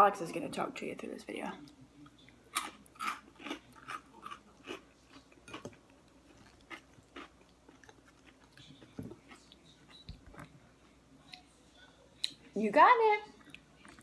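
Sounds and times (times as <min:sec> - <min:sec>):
chewing salad: 0:01.6 - 0:11.6, 0:13.3 - 0:14.0.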